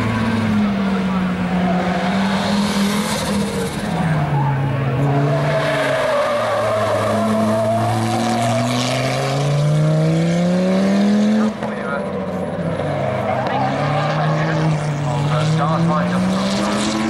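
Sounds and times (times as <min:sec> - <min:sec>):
rally car engine revving: 0:00.0 - 0:17.0
tyres squealing: 0:01.6 - 0:09.4.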